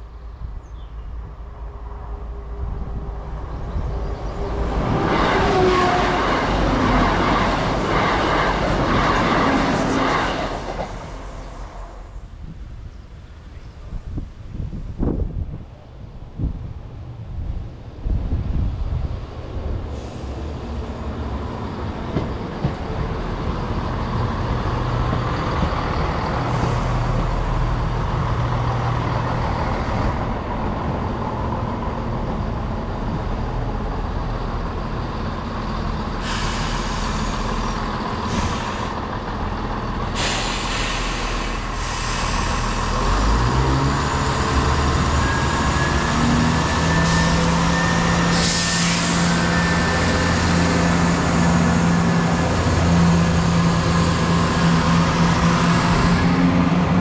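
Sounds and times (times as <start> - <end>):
diesel train engines droning: 0.0 - 57.0
wheels rumbling on rails: 1.8 - 57.0
hiss: 19.9 - 20.6, 36.2 - 39.0, 40.0 - 43.6, 48.2 - 50.6.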